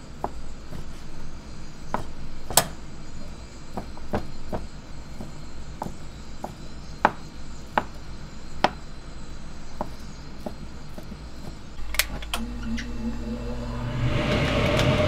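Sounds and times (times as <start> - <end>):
gas burner hum: 0.0 - 15.0
knife chopping on cutting board: 1.9 - 2.8
gas burner igniter clicks: 11.8 - 12.9.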